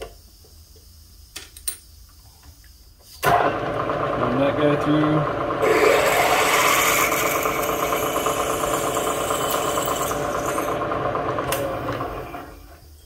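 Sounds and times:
milling machine drilling steel: 0:05.6 - 0:10.8.

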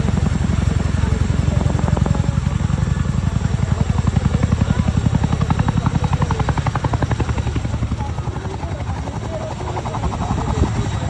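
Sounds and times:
helicopter rotors chopping: 0:00.0 - 0:11.0.

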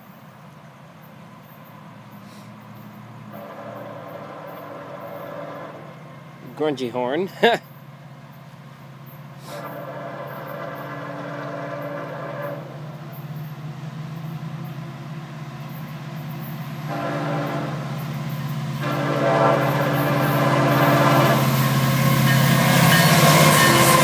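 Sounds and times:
locomotive rumble: 0:00.0 - 0:24.0
locomotive air horn blasts: 0:03.3 - 0:06.2, 0:09.4 - 0:13.0, 0:16.8 - 0:24.0.

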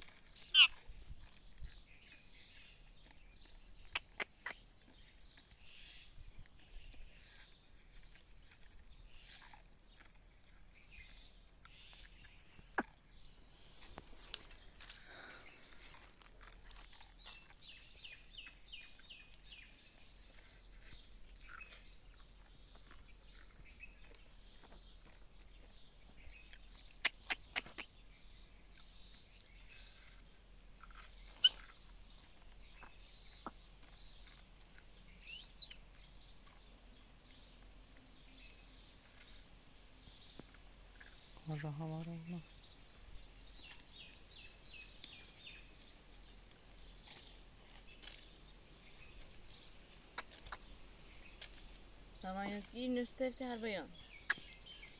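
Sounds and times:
parrot chirps and calls: 0:00.1 - 0:01.8, 0:03.8 - 0:06.1, 0:26.3 - 0:28.3, 0:30.9 - 0:36.6, 0:53.9 - 0:54.9.

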